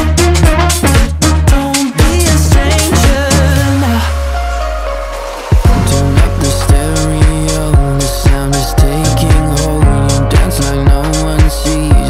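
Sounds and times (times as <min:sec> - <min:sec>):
electronic pop music: 0:00.0 - 0:12.0
sinking bass note: 0:05.7 - 0:10.3.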